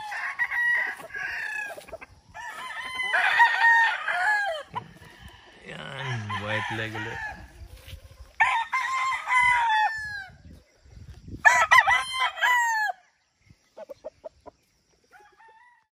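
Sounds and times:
roosters crowing: 0.0s - 10.5s, 11.4s - 13.1s, 15.1s - 15.9s
chicken clucks: 13.5s - 15.5s.

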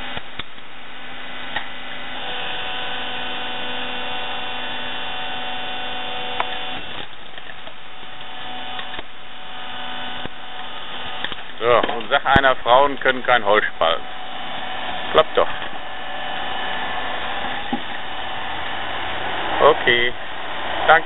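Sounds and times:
hydraulic log splitter humming: 0.0s - 21.0s
wood splitting crack: 6.3s - 9.2s, 11.1s - 13.1s.

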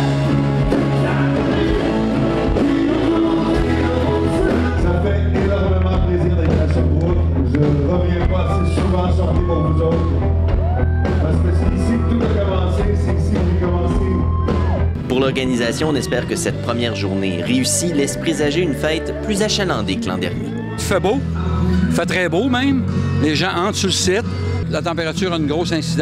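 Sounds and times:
bass line: 0.0s - 26.0s
live pop-rock band: 0.0s - 26.0s
man singing: 0.6s - 10.3s, 11.2s - 14.3s, 15.1s - 20.8s.

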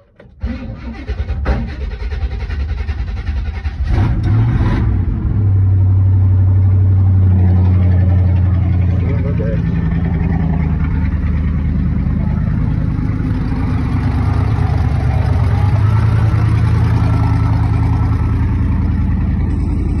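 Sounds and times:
pickup truck engine running: 4.9s - 20.0s.

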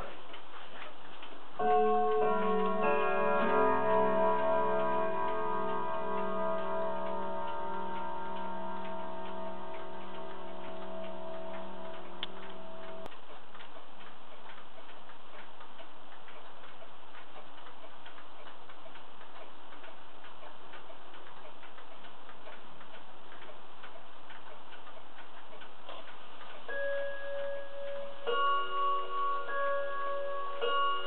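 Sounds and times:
pendulum clock ticking: 0.0s - 31.0s
clock chime striking: 1.6s - 13.1s, 26.7s - 31.0s.

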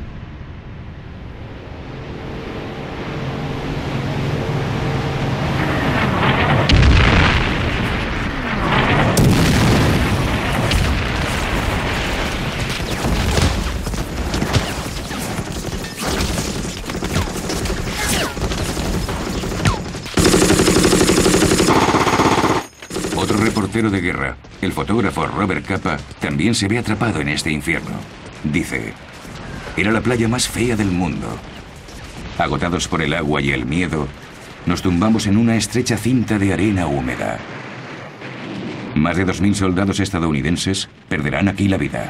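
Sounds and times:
low drone: 0.0s - 6.9s
deep explosion: 6.0s - 15.2s, 37.2s - 39.7s
gunshots and blasts: 6.2s - 24.9s
rapid machine-gun fire: 12.7s - 23.8s.

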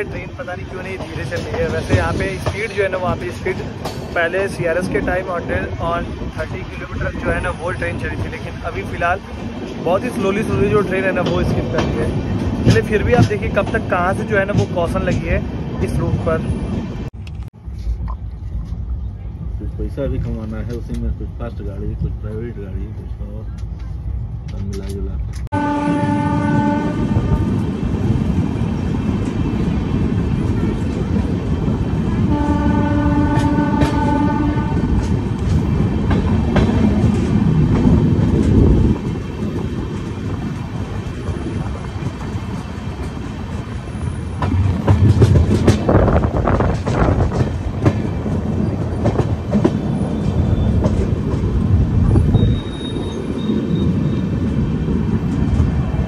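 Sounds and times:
train coach rumbling on rails: 0.0s - 56.0s
wheels clacking on track: 0.0s - 56.0s
train horn: 25.5s - 27.6s, 32.3s - 34.9s.

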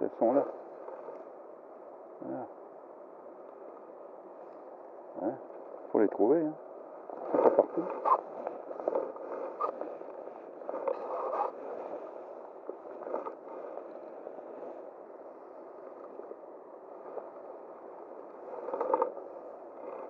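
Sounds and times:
brief rustles and scrapes: 7.2s - 12.2s.

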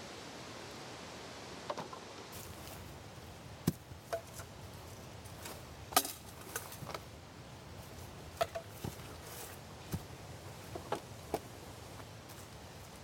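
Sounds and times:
firewood knocking and clacking: 3.6s - 4.5s, 8.4s - 9.2s.

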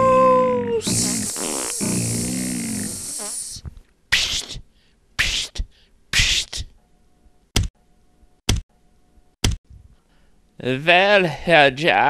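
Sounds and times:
long wavering cartoon sound: 0.0s - 2.2s
snake hissing bursts: 0.8s - 4.6s.

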